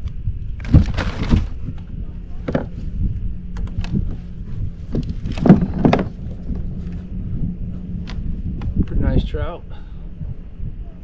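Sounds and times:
low rumble: 0.0s - 11.0s
knocks and rattles on plastic kayak: 2.4s - 2.8s, 4.9s - 6.3s.

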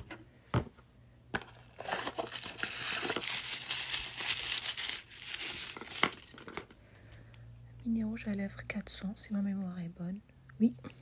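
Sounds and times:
packaging crinkling and rustling: 1.4s - 6.8s.

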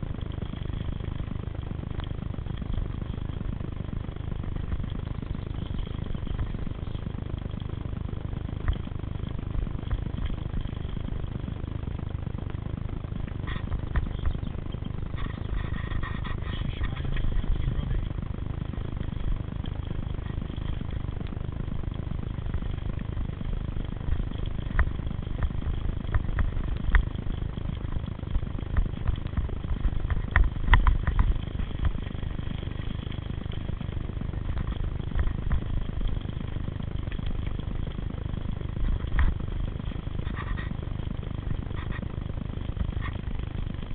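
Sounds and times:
tyres rolling on dirt trail: 0.0s - 43.9s
bike clicks and rattles: 22.4s - 43.9s.

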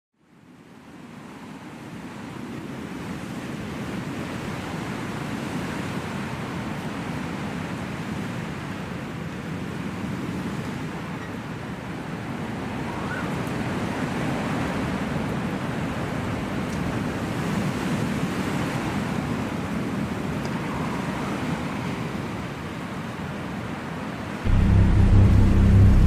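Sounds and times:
low rushing ambient drone: 24.5s - 26.0s.

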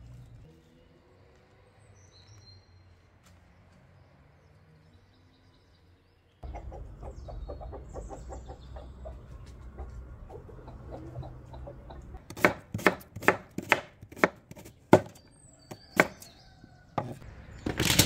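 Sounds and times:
chickens clucking: 6.4s - 12.3s.

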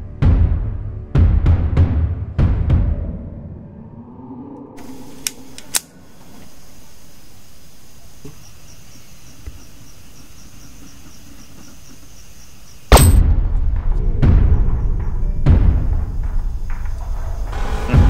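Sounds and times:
crickets chirping: 3.8s - 17.8s
handgun cocking clicks: 5.1s - 6.0s.

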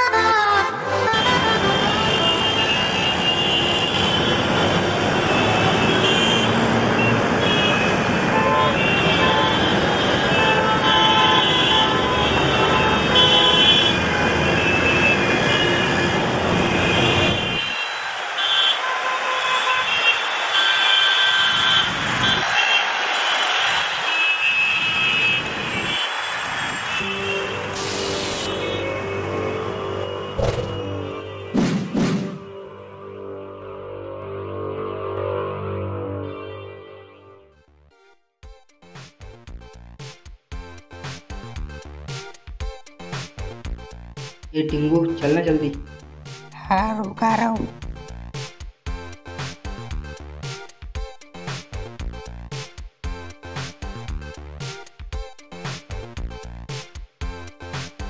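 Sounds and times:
car horn toots: 0.0s - 4.4s, 5.3s - 26.1s
road traffic rumble: 0.0s - 31.6s.

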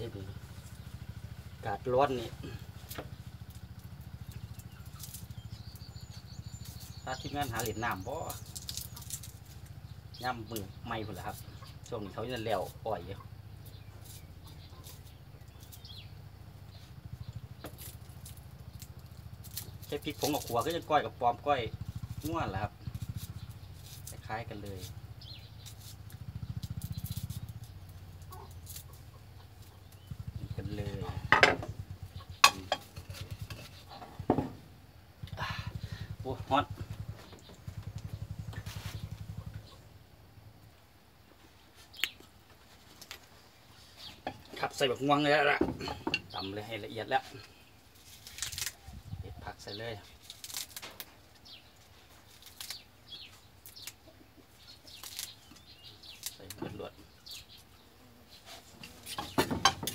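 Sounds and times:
small birds chirping: 0.0s - 59.9s
herbs snapping and tearing: 2.6s - 9.8s, 17.6s - 20.9s, 21.9s - 29.1s, 41.9s - 42.4s, 47.9s - 49.0s, 50.0s - 57.8s.

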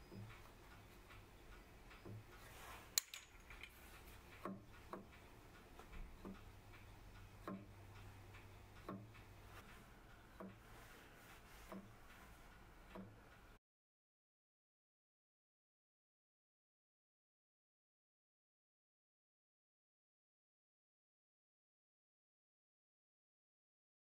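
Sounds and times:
dividing plate clicks and knocks: 3.0s - 3.8s.

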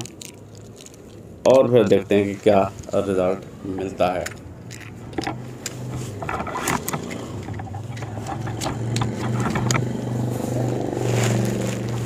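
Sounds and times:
pulsing engine hum: 2.8s - 12.0s.

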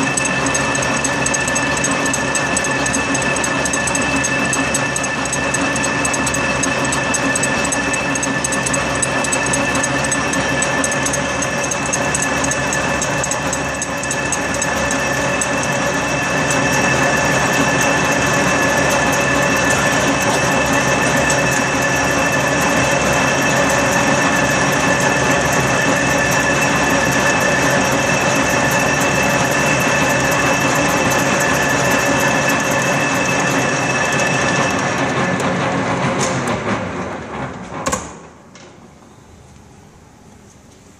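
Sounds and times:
milling cutter machining steel: 0.0s - 36.5s.

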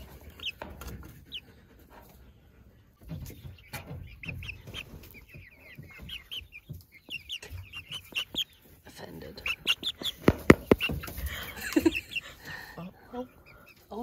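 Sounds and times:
chicks peeping: 0.0s - 14.0s
bird bumping microphone: 9.5s - 12.0s.

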